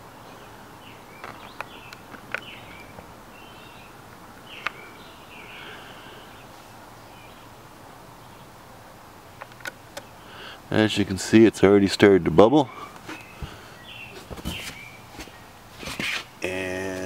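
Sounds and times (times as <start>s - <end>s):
low steady hiss: 0.0s - 17.0s
sharp clicks: 9.4s - 10.1s.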